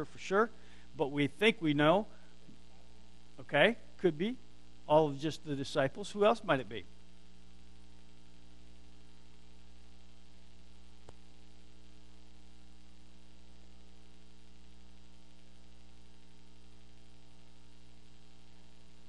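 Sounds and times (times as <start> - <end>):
recording hiss: 0.0 - 7.8
electrical mains hum: 0.0 - 19.0
faint click: 11.0 - 11.2.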